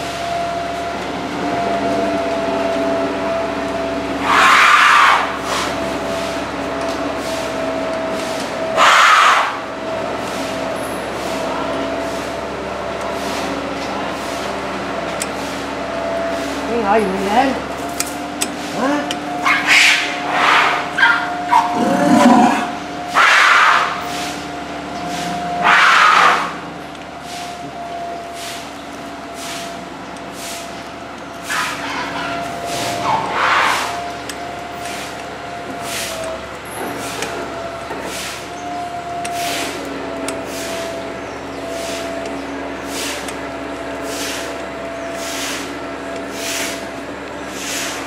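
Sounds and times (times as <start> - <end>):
two-tone mechanical hum: 0.0 - 48.0
elephant squeaky calls: 4.2 - 5.7, 8.8 - 9.6, 19.4 - 24.0, 31.4 - 34.1.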